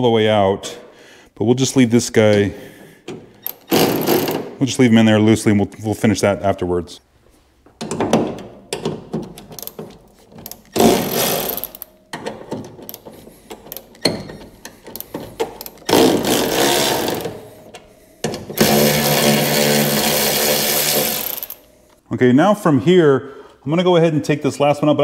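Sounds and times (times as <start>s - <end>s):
tool and bolt clicks: 3.0s - 4.5s, 7.6s - 19.1s
electric ratchet running: 10.6s - 11.9s, 15.0s - 17.4s, 18.6s - 21.6s.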